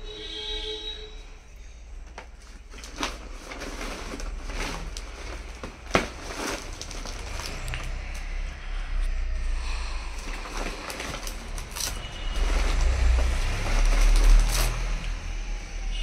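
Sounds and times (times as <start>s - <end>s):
plastic sack rustling: 2.1s - 8.3s, 10.1s - 15.4s.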